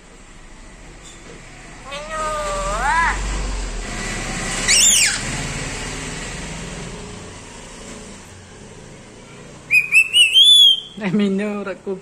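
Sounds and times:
parrot whistling: 4.7s - 5.2s, 9.7s - 11.0s.

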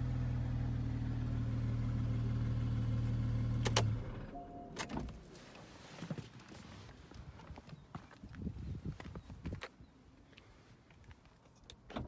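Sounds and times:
short beep: 4.3s - 4.8s
soft handling noises: 5.1s - 11.9s.

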